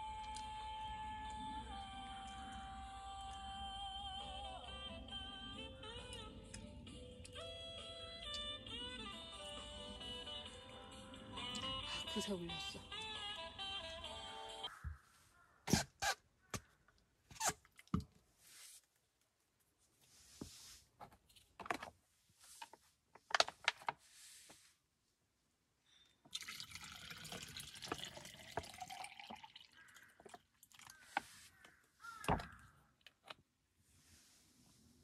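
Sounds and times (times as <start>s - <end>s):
water pouring into bottle: 26.3s - 31.0s.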